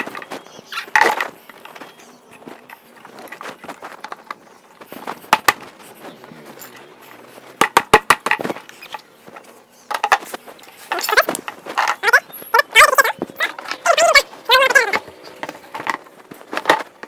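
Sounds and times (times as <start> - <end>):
plastic table parts clacking: 7.6 - 12.2, 13.4 - 17.0.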